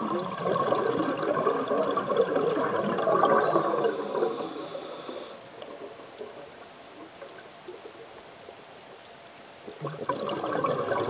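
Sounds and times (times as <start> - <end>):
underwater bubbles gurgling: 0.0 - 8.4, 9.6 - 11.0
high hiss with whistling tones: 3.4 - 5.4.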